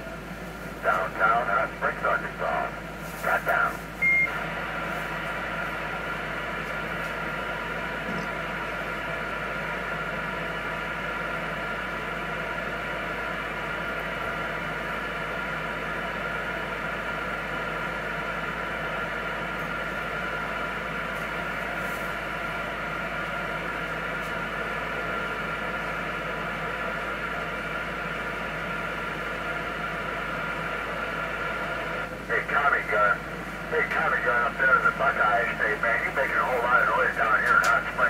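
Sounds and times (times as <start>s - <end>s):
radio static hiss: 0.6s - 9.3s, 18.7s - 25.9s, 29.0s - 38.0s.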